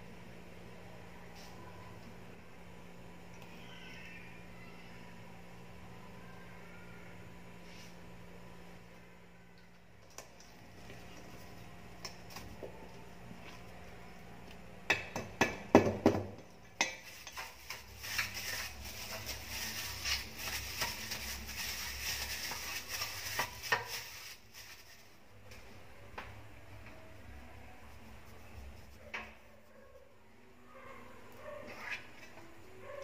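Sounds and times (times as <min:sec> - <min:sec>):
plastic crinkling and rubbing: 0:17.1 - 0:25.2.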